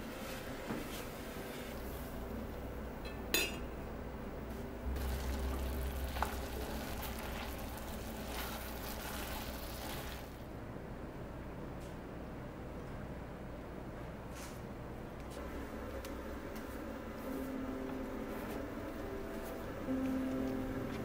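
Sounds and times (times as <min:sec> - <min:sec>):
low hum: 0:01.3 - 0:21.0
metal lid clinking on pan: 0:03.1 - 0:03.7
apples sizzling in saucepan: 0:04.9 - 0:10.4.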